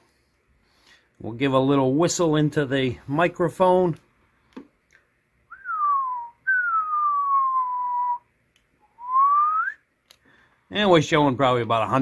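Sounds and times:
man whistling into microphone: 5.5 - 9.8.

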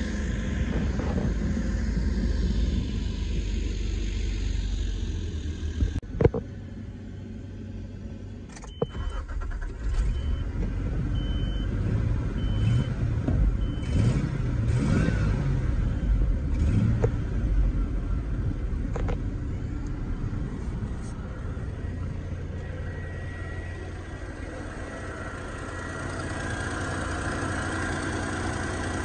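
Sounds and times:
engine starting and idling: 8.5 - 11.7, 19.8 - 29.0.

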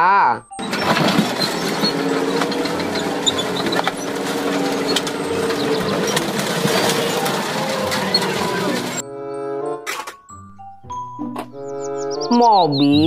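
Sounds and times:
tank engine droning: 0.5 - 9.8
car body cracking and crunching: 0.6 - 9.0.

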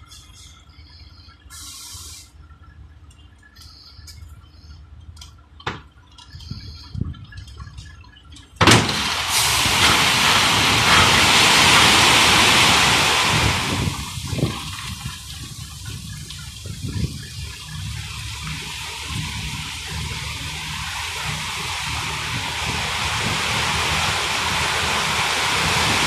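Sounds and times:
low truck rumble: 0.0 - 26.0
loose material rushing out: 8.7 - 15.0.

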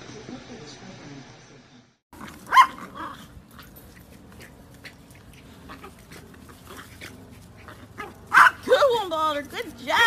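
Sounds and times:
dogs scrabbling on grass: 2.2 - 8.7.

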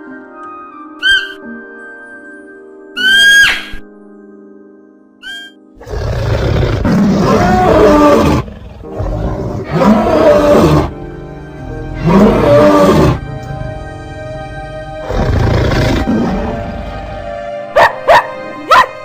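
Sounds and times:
background music: 0.0 - 19.0
lion roaring: 5.8 - 10.9, 11.9 - 13.2, 15.0 - 16.9.

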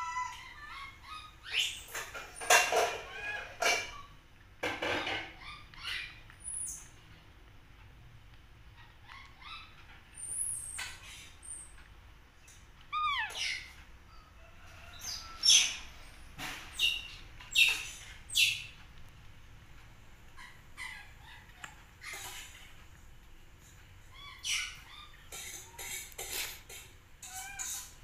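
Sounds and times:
baby monkey squeaking: 0.0 - 4.1, 5.3 - 7.0, 8.8 - 11.7, 12.9 - 13.8, 16.7 - 18.8, 20.4 - 22.6, 24.1 - 27.9.

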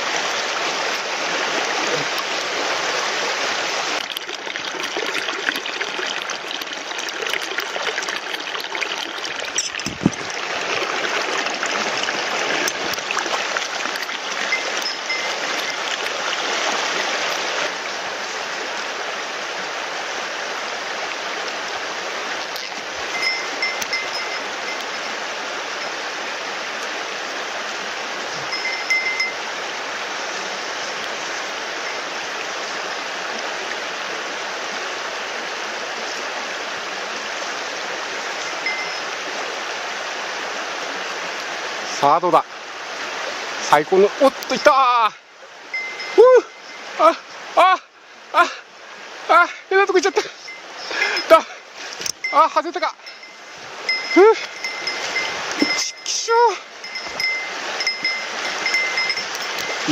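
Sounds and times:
stream running over stones: 0.0 - 59.9.

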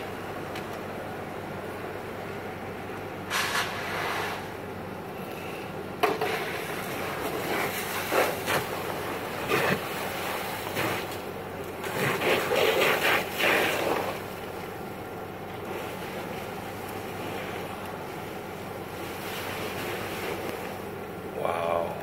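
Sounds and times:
car fire rushing: 3.2 - 4.7, 5.4 - 21.4.

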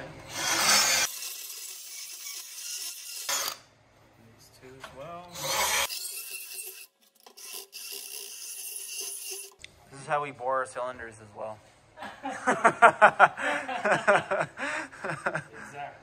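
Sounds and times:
cordless drill whining: 0.3 - 3.6.

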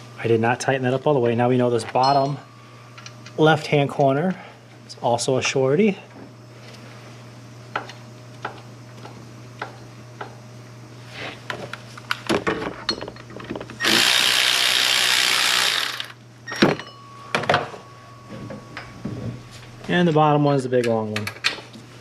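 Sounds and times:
cordless electric ratchet running: 13.8 - 16.2.

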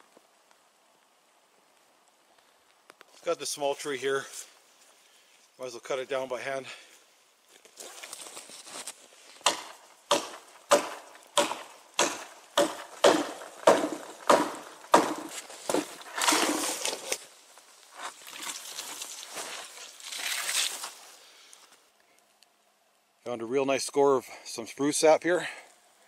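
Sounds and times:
rustling and crunching in snow: 3.1 - 11.3, 15.2 - 21.8
hatchet chopping wood: 9.4 - 16.7.

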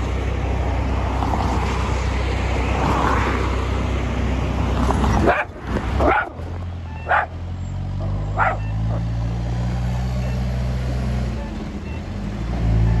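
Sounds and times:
diesel engine running: 3.5 - 13.0
dog barking: 5.2 - 6.4, 7.0 - 7.3, 8.0 - 9.1.

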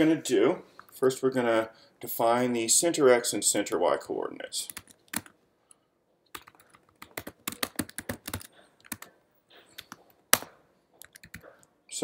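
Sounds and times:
typing on computer keyboard: 4.7 - 5.4, 6.3 - 9.1, 9.7 - 10.0, 11.0 - 11.5.

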